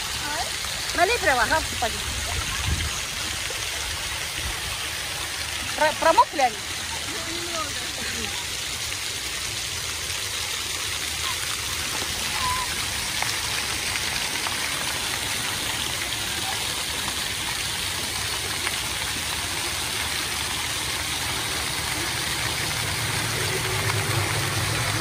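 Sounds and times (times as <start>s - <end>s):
fountain water splashing: 0.0s - 25.0s.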